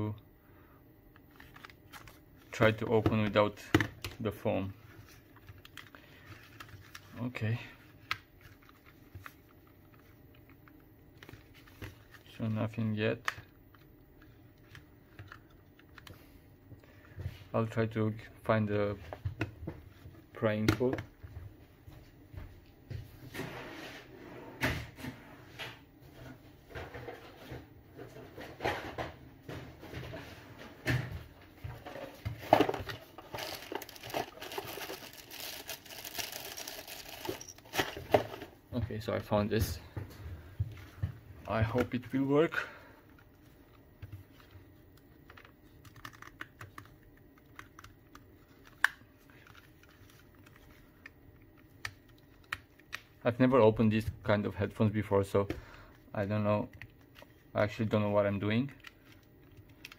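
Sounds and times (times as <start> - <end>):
knocks and clatters of rummaging: 26.1 - 38.6.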